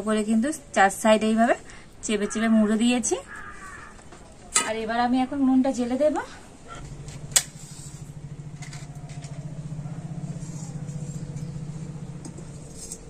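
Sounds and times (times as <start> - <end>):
fire rumbling in a stove: 6.5 - 13.0.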